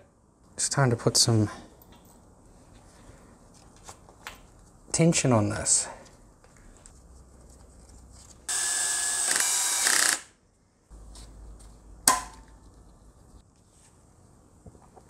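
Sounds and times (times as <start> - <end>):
cordless drill running: 8.5 - 10.3.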